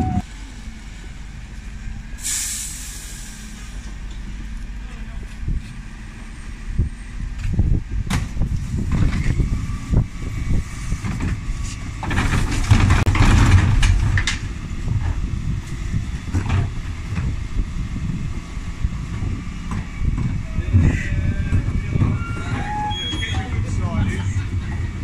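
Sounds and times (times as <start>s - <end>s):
bin lorry engine running: 0.0s - 25.0s
rushing clatter of bins emptying: 12.0s - 14.2s.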